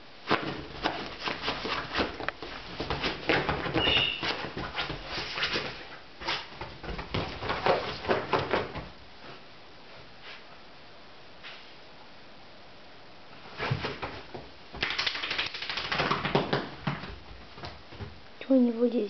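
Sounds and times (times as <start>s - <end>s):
dog scratching at sofa cushions: 0.3s - 8.8s
high squeak: 3.8s - 4.3s.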